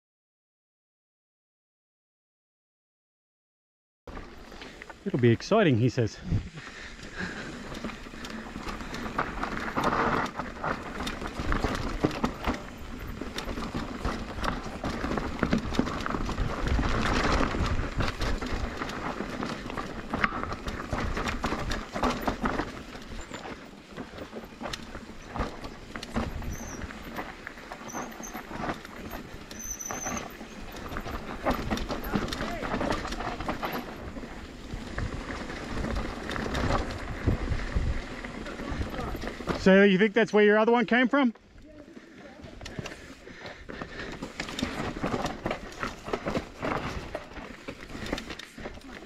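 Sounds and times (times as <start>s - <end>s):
bike chain and frame rattling: 4.1s - 40.0s, 41.6s - 49.0s
bike tyres rolling over rocks: 4.1s - 49.0s
wind rumble on microphone: 34.6s - 39.6s.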